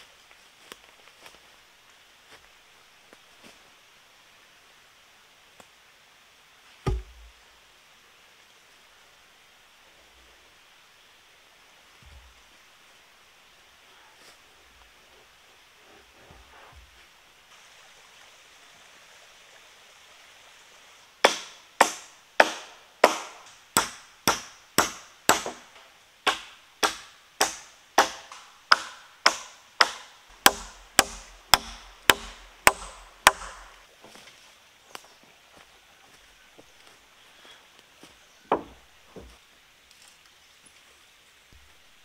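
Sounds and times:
hammer driving nails into wood: 21.2s - 33.7s.

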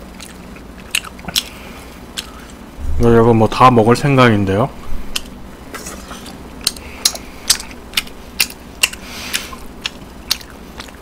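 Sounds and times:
low hum: 0.0s - 11.0s
wet chewing mouth smacks: 6.6s - 11.0s.

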